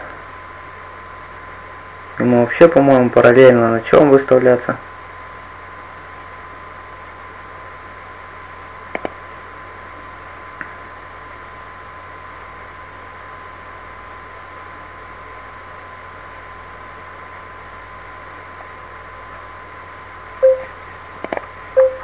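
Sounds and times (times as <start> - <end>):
microphone hiss: 0.0 - 22.0
quick clicks: 8.9 - 9.2
faint high steady tone: 20.4 - 20.8, 21.8 - 22.0
low hum: 20.4 - 21.0, 21.6 - 22.0.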